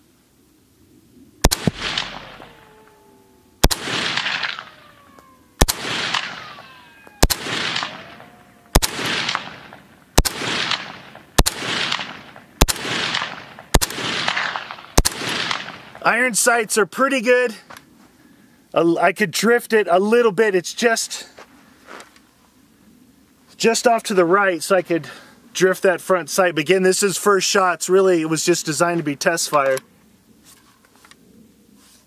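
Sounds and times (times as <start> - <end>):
rifle shots with rolling echo: 1.4 - 16.1.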